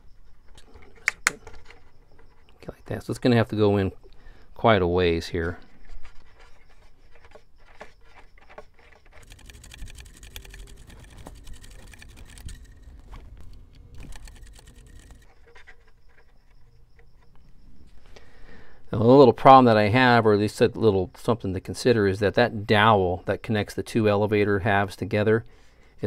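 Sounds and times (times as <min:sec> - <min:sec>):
light plastic clicks and rubbing: 0:05.4 - 0:18.0.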